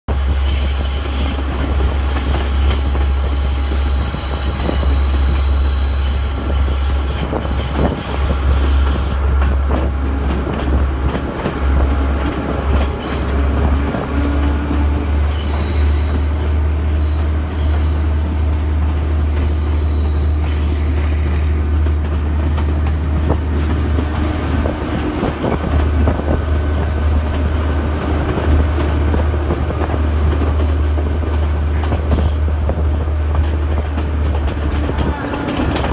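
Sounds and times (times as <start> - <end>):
train rumbling on track: 0.0 - 35.9
high-pitched wheel squeal: 0.1 - 9.2, 15.2 - 16.3, 19.4 - 20.8.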